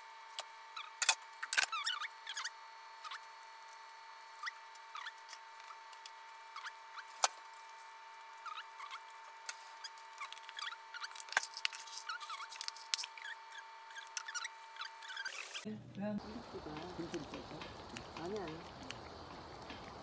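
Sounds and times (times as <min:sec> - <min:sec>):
faint high whine: 0:00.0 - 0:20.0
gloved hands squeaking and squelching: 0:00.8 - 0:03.3, 0:04.3 - 0:07.7, 0:08.3 - 0:15.7.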